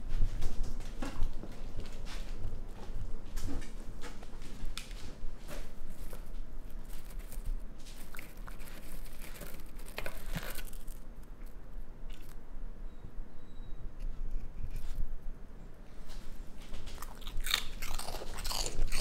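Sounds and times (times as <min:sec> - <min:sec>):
crackly rustling and tapping: 0:00.0 - 0:12.4, 0:16.0 - 0:19.0
raccoon rummaging in plastic jar: 0:05.6 - 0:11.1.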